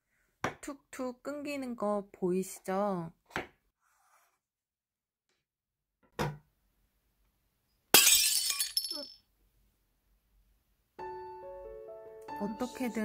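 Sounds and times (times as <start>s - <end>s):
glass shattering: 7.9s - 9.2s.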